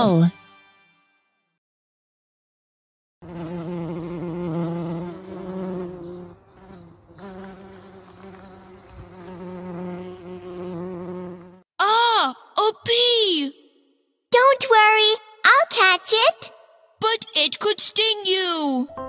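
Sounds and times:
cartoon bumblebee buzzing: 3.2s - 11.6s.

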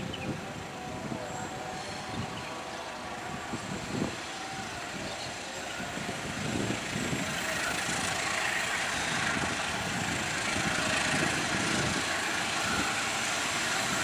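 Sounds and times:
locomotive engine drone: 0.0s - 14.0s.

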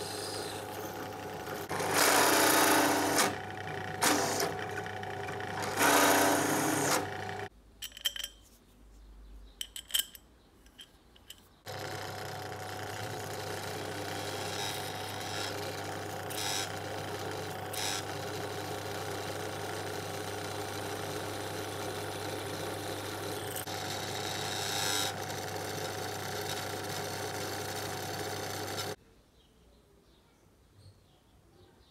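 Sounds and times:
drill press humming: 0.0s - 7.5s, 11.7s - 29.0s
drill bit grinding into aluminium: 1.7s - 3.4s, 5.6s - 7.3s, 11.7s - 18.3s, 22.8s - 25.8s.

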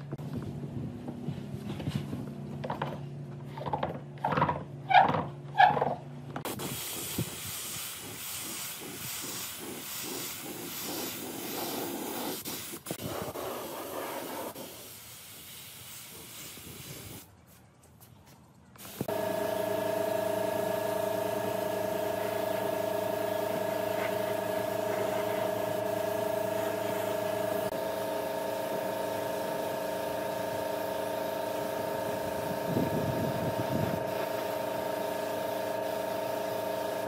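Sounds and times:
spray gun hissing: 6.5s - 17.2s, 28.6s - 37.0s.

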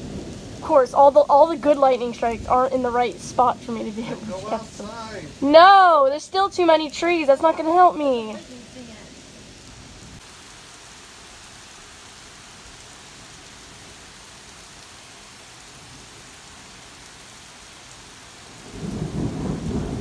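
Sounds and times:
deep rumble of thunder: 0.0s - 5.7s, 18.5s - 20.0s
steady rain: 0.0s - 20.0s.

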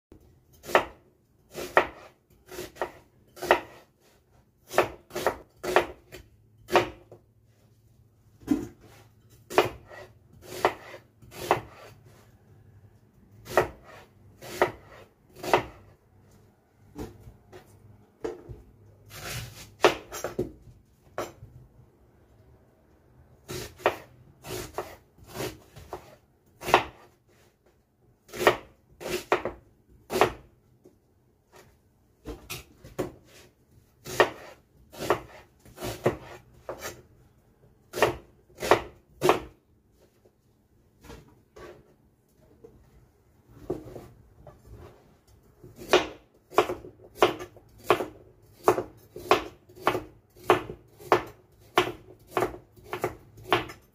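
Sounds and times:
knife chopping on cutting board: 0.5s - 7.2s, 8.4s - 11.9s, 13.4s - 15.9s, 16.9s - 21.4s, 23.5s - 27.2s, 28.3s - 30.5s, 31.5s - 37.0s, 37.9s - 39.6s, 45.7s - 53.9s.

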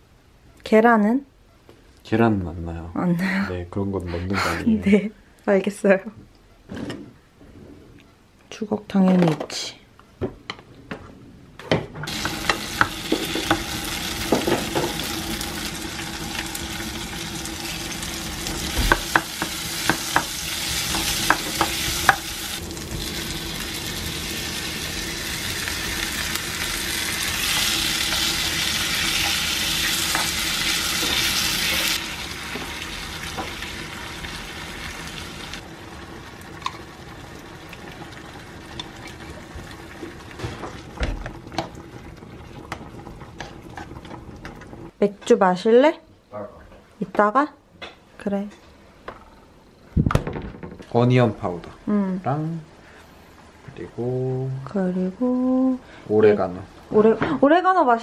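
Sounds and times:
vegetables sizzling in oil: 12.1s - 44.9s.

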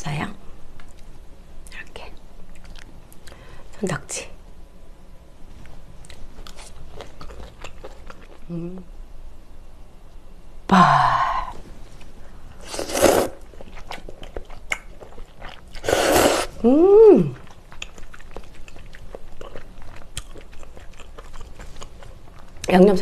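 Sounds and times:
soft chewing: 0.7s - 3.7s, 5.4s - 8.9s, 11.5s - 23.0s
loud slurps: 12.6s - 13.4s, 15.8s - 16.6s
person humming: 16.6s - 17.4s.

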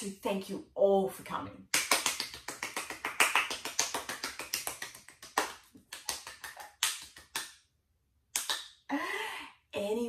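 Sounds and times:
person clapping hands: 1.7s - 7.6s, 8.4s - 8.7s.

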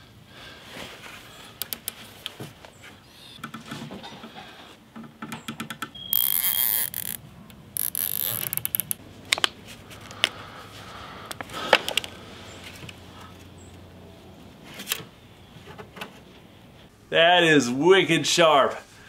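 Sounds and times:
sharp clicks: 1.6s - 2.0s, 5.2s - 9.5s
zip ties zipping: 6.1s - 7.2s, 7.8s - 9.0s.

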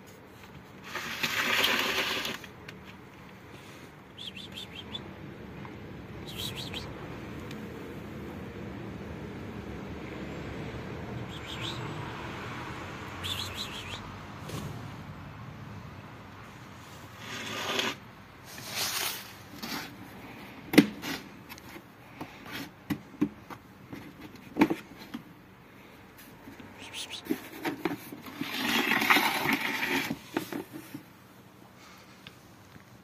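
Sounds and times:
plastic scraping and rubbing: 0.4s - 3.0s, 17.1s - 25.2s, 26.5s - 31.1s.

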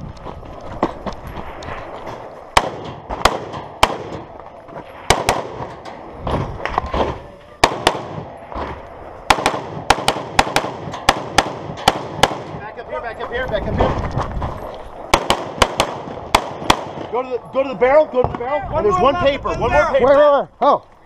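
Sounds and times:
rifle shots: 2.5s - 12.6s, 15.1s - 17.2s.

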